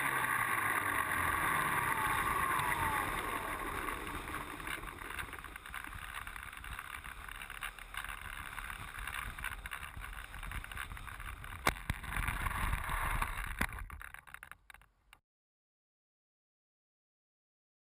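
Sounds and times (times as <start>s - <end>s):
airflow rushing over camera: 0.0s - 14.1s
plane scraping along ground: 0.0s - 14.5s.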